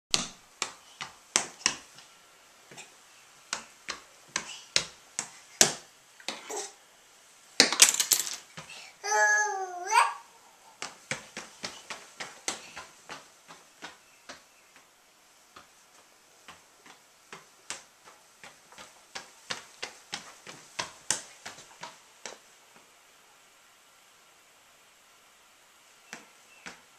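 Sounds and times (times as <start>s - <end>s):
toddler crying: 9.0s - 10.4s
footsteps on hardwood floor: 10.8s - 14.9s.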